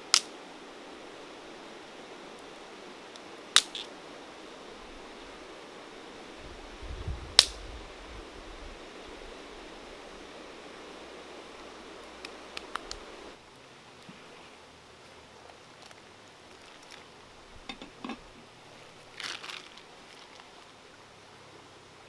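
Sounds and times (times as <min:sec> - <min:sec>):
steady fire hiss: 0:00.0 - 0:22.0
wood cracking in fire: 0:15.8 - 0:17.1.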